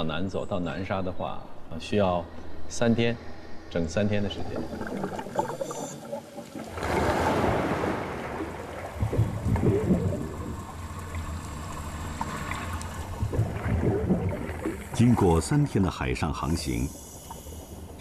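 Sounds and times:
low steady hum: 0:00.0 - 0:18.0
underwater bubbling: 0:04.1 - 0:18.0
water splash: 0:04.4 - 0:15.8.

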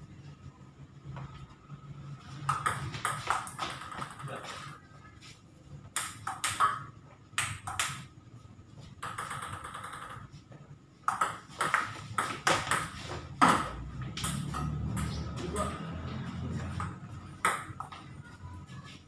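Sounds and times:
table tennis ball bouncing: 0:02.4 - 0:04.4, 0:05.9 - 0:08.1, 0:09.0 - 0:10.4, 0:11.0 - 0:18.1.

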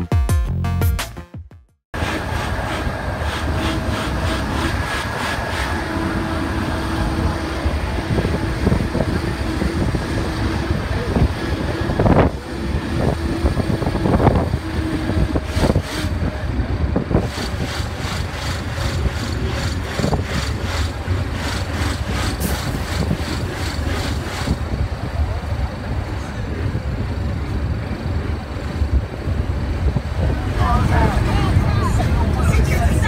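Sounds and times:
vehicle engine and road noise: 0:01.9 - 0:33.0.

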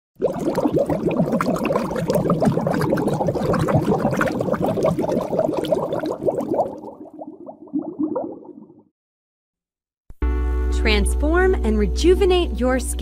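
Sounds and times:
water bubbling: 0:00.2 - 0:08.9.

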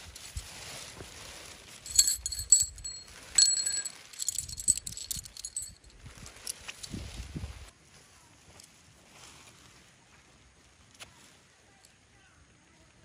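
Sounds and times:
rustling handling: 0:00.0 - 0:07.6
metal objects clinking: 0:01.8 - 0:06.9.

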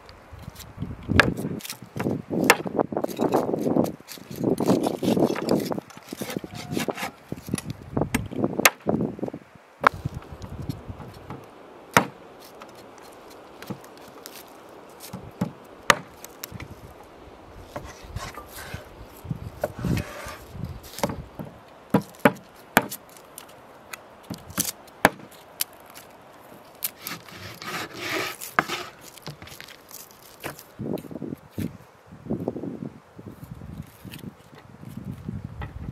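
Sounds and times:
knife scraping board: 0:03.2 - 0:07.2, 0:17.7 - 0:18.9, 0:19.6 - 0:21.2, 0:26.9 - 0:29.4
knife chopping on wooden board: 0:21.9 - 0:22.9.

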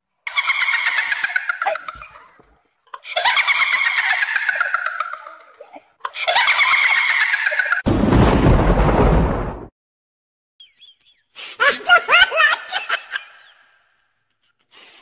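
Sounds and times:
rough bass-heavy blast: 0:07.9 - 0:09.7.

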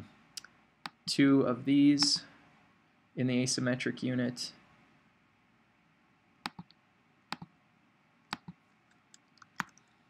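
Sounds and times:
computer mouse clicking: 0:06.5 - 0:06.8, 0:08.3 - 0:09.8.

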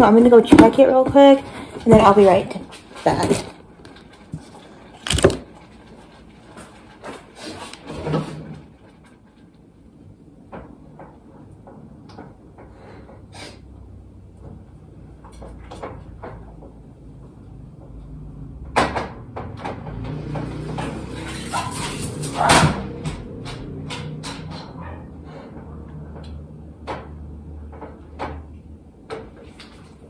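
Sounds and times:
kitchen knocks and clicks: 0:17.8 - 0:24.9.

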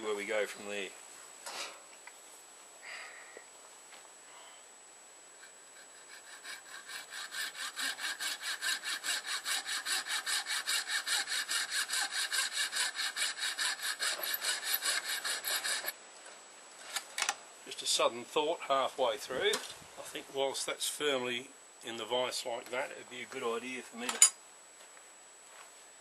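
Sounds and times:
hand saw cutting antler: 0:05.4 - 0:16.0.

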